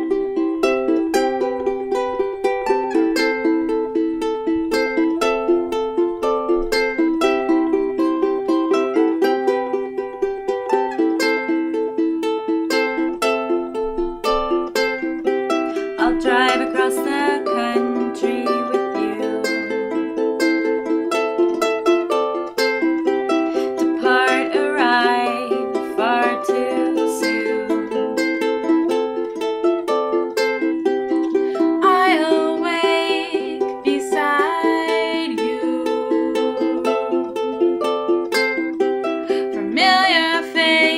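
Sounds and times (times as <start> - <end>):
ukuleles playing: 0.0 - 40.9
woman singing: 15.6 - 20.2, 23.6 - 28.4, 31.6 - 38.0, 39.3 - 40.9.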